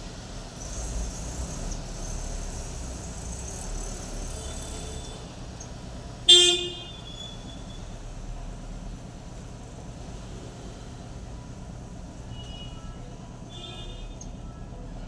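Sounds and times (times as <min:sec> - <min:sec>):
street traffic hum: 0:00.0 - 0:15.0
vehicle horn toot: 0:06.3 - 0:07.8, 0:12.3 - 0:14.6.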